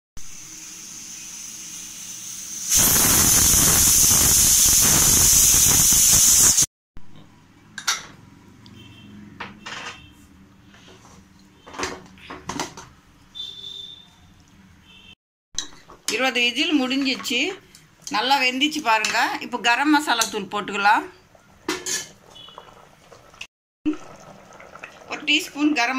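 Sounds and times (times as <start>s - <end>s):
pressure cooker steam hissing: 0.2s - 6.7s.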